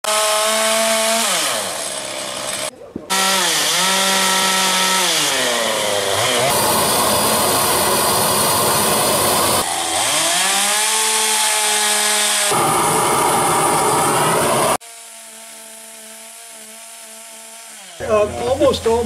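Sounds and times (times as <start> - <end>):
chainsaw revving: 0.0 - 19.0
propane torch roaring: 6.5 - 10.0, 12.5 - 14.8.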